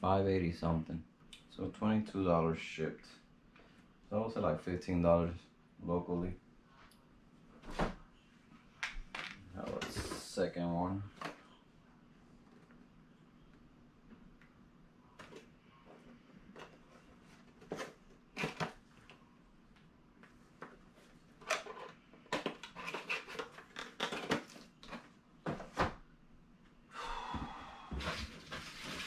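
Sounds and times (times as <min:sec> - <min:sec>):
clicks and knocks of products: 0:21.4 - 0:26.0.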